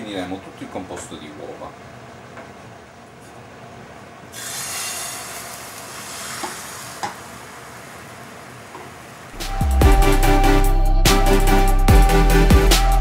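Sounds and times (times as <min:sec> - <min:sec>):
egg sizzling in frying pan: 0:04.3 - 0:09.4.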